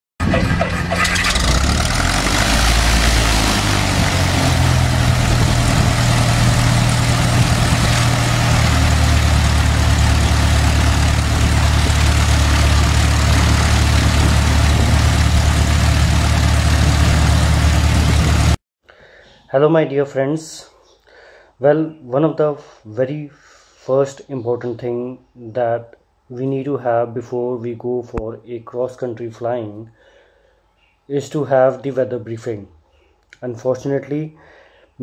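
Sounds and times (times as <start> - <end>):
engine noise with hum and hiss: 0.2 - 18.6.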